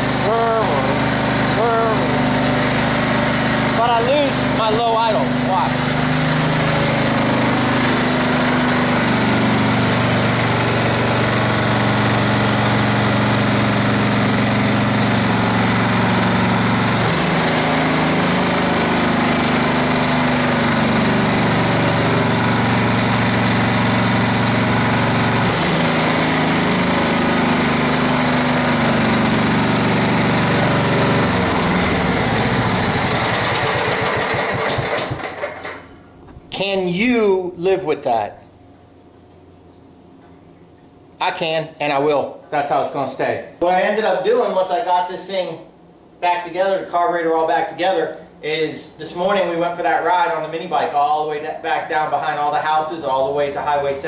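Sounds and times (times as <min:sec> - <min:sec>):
riding mower engine running: 0:00.0 - 0:36.8, 0:49.3 - 0:54.0.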